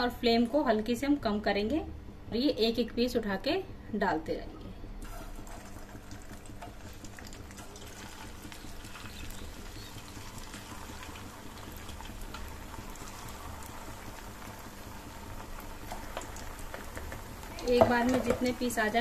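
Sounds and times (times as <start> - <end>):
food deep-frying in oil: 5.0 - 19.0.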